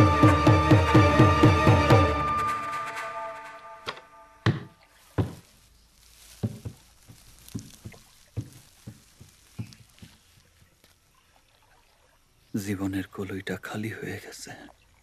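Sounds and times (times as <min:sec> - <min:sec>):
tabla-led folk tune: 0:00.0 - 0:04.7
short knocks and thuds: 0:04.5 - 0:05.5, 0:06.4 - 0:10.3.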